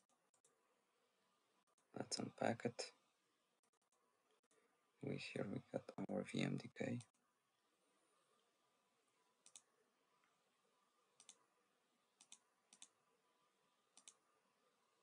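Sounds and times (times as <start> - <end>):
faint computer mouse clicks: 9.4 - 9.7, 11.2 - 11.4, 12.2 - 13.0, 14.0 - 14.2.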